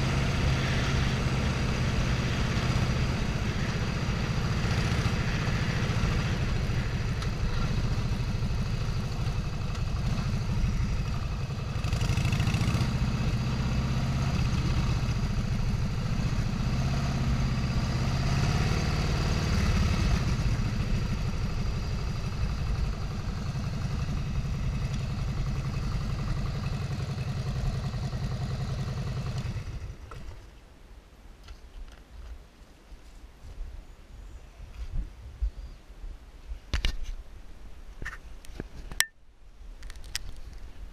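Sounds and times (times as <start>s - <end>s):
vehicle engine running: 0.0s - 30.4s.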